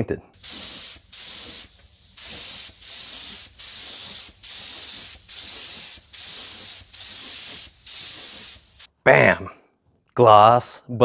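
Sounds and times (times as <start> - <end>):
spray gun hissing: 0.4 - 8.9.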